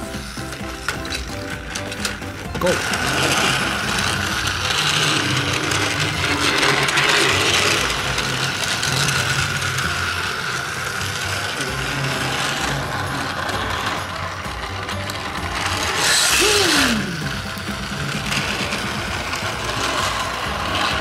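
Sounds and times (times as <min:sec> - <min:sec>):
toy car motors whirring: 0:00.0 - 0:21.0.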